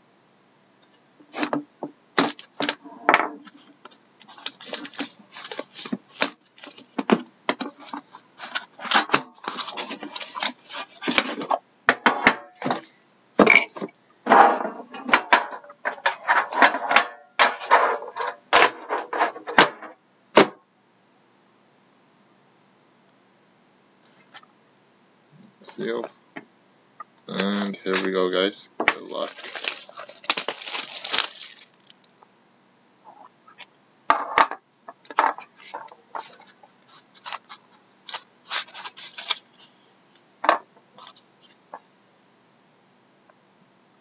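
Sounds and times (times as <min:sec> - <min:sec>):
shrink wrap crinkling: 0:03.4 - 0:07.0, 0:28.9 - 0:32.1, 0:36.1 - 0:39.6
knife slitting plastic wrap: 0:04.3 - 0:06.8, 0:29.0 - 0:32.0.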